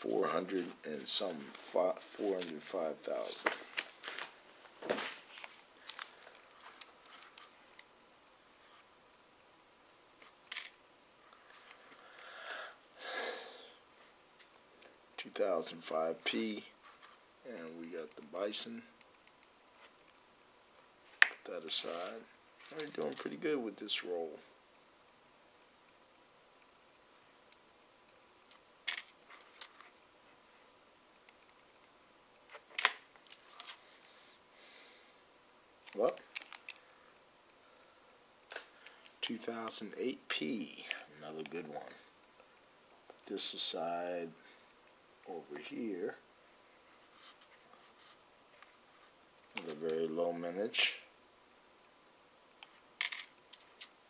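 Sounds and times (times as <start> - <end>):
coins clinking: 10.5 - 10.8, 21.8 - 23.4, 28.9 - 29.8, 32.7 - 33.8, 53.0 - 54.0.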